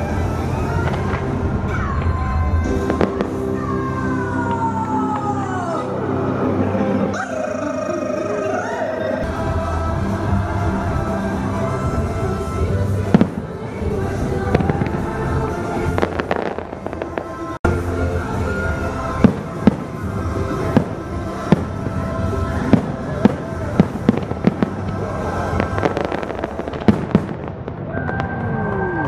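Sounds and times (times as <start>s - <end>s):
fireworks bangs: 0.0s - 5.4s, 9.4s - 29.0s
loud show music: 0.0s - 27.5s.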